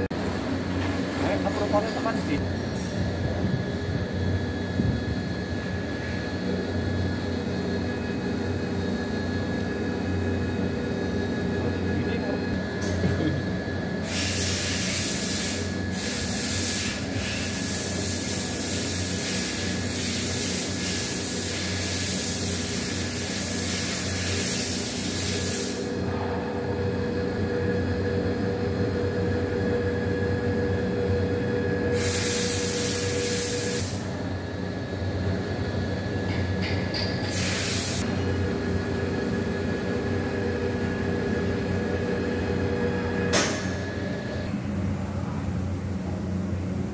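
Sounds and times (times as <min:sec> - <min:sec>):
machine hum: 0:00.0 - 0:19.0, 0:19.6 - 0:36.6, 0:38.0 - 0:46.9
loud hiss: 0:14.0 - 0:25.9, 0:31.9 - 0:34.0, 0:37.3 - 0:38.0.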